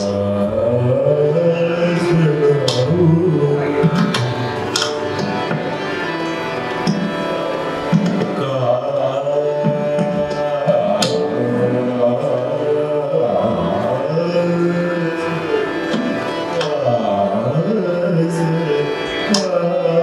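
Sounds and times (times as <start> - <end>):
person singing long notes: 0.0 - 20.0
tabla strokes: 2.6 - 8.5.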